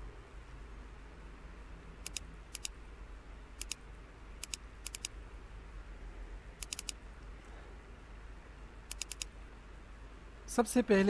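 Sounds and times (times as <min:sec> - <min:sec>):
faint low hum: 0:00.0 - 0:11.0
computer mouse clicking: 0:02.0 - 0:02.8, 0:03.6 - 0:03.8, 0:04.4 - 0:05.2, 0:06.6 - 0:07.0, 0:08.9 - 0:09.3.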